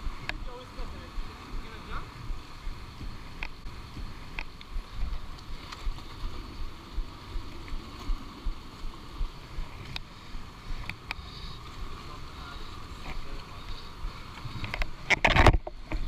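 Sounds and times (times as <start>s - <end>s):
wind rumble: 0.0s - 16.0s
microphone handling noise: 2.2s - 8.6s, 13.0s - 16.0s.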